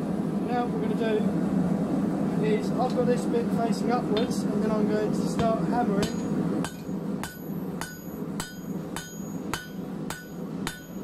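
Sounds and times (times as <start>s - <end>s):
hammer striking steel on anvil: 5.3s - 11.0s.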